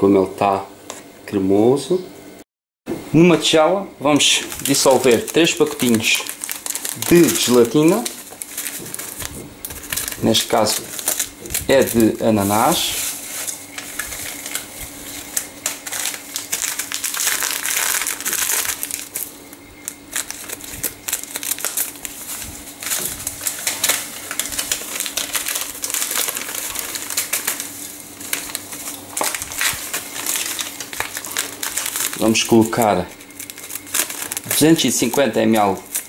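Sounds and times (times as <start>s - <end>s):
sachets crinkling and rustling: 4.1s - 36.0s.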